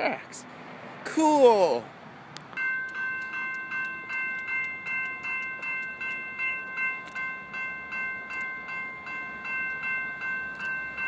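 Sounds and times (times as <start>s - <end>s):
railroad crossing bell ringing: 2.5s - 11.0s.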